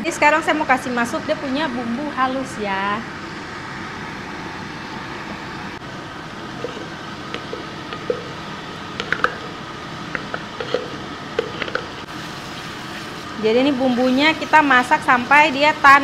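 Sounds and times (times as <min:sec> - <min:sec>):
paste sizzling in hot oil: 0:10.1 - 0:15.3.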